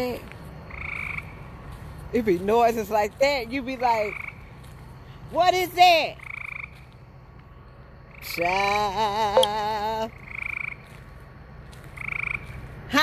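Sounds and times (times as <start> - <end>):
frogs calling in buzzy trills: 0.0 - 2.0, 3.8 - 4.8, 5.7 - 13.0.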